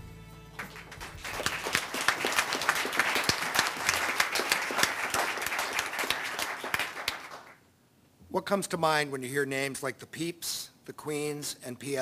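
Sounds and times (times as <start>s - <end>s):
audience applauding: 0.6s - 7.6s.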